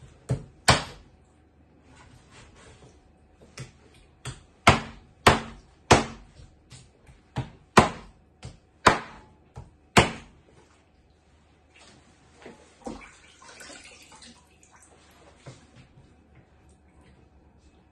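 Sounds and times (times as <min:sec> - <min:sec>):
knife chopping on wooden board: 0:00.2 - 0:01.0, 0:03.6 - 0:10.4.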